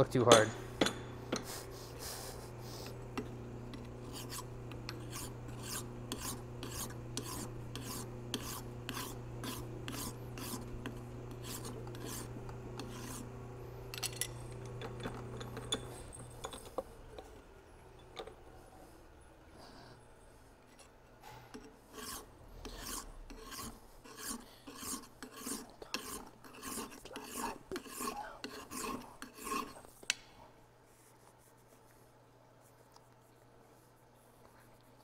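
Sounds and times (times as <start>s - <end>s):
steady low hum: 0.0s - 35.0s
hand file rasping on metal: 1.4s - 13.4s, 21.6s - 29.9s.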